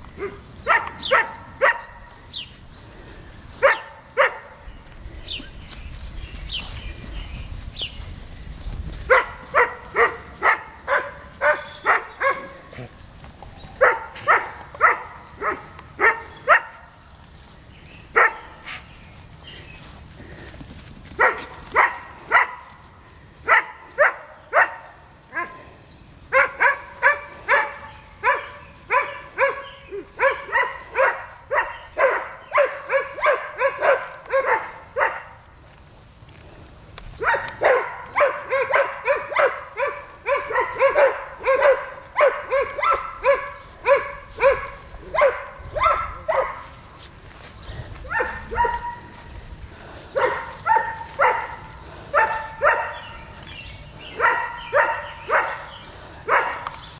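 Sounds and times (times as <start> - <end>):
dog barking: 0.2 - 2.1, 3.6 - 4.6, 9.1 - 12.9, 13.8 - 17.0, 18.1 - 18.8, 21.2 - 22.7, 23.4 - 25.6, 26.3 - 35.4, 37.2 - 46.8, 48.0 - 49.2, 50.1 - 53.3, 54.1 - 56.8.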